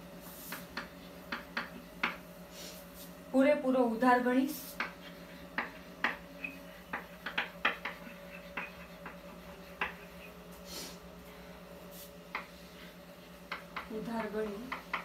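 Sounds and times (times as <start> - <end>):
faint steady hum: 0.0 - 15.0
chalk scratching on chalkboard: 4.5 - 10.9.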